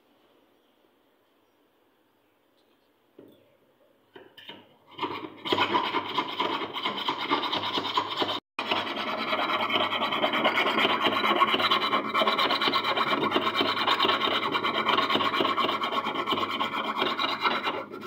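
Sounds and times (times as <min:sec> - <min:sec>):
file scraping metal: 0:04.4 - 0:18.0.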